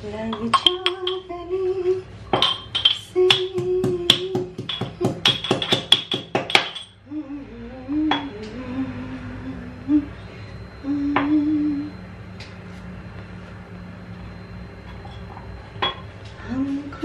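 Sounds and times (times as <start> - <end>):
woman humming: 3.1 - 5.4, 7.0 - 12.1, 16.4 - 17.0.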